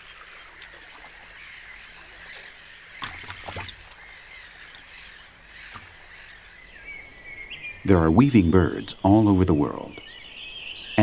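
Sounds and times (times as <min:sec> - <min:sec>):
birds splashing water: 0:00.0 - 0:07.8
low hiss of open water: 0:00.0 - 0:11.0.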